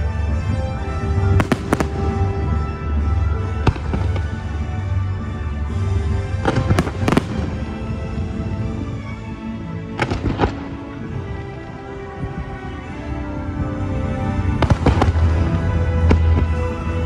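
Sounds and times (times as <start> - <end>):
fireworks bursting: 1.2 - 2.8.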